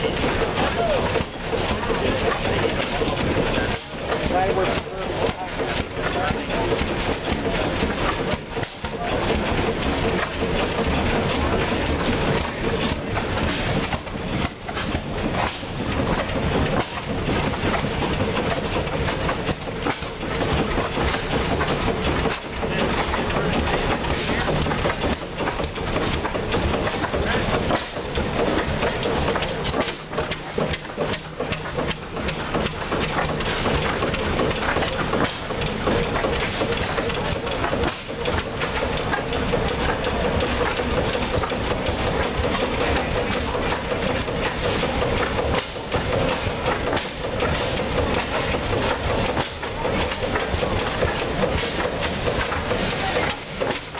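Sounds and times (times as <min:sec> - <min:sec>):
flywheel engine running: 0:00.0 - 0:53.9.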